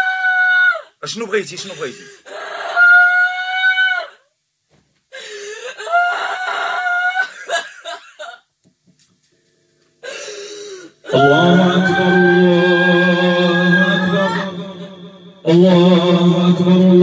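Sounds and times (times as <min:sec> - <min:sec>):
person wailing: 0:01.6 - 0:04.1, 0:05.7 - 0:07.6, 0:11.0 - 0:14.9
man chanting: 0:11.1 - 0:17.0.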